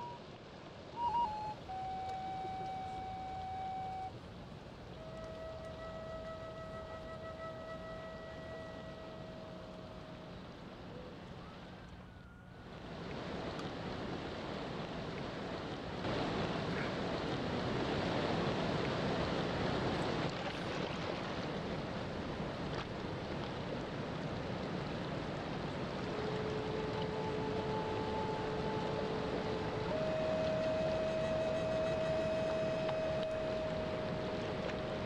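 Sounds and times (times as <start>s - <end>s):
waves breaking: 0.0s - 35.0s
held musical tone: 1.0s - 4.1s, 5.0s - 10.4s, 26.0s - 35.0s.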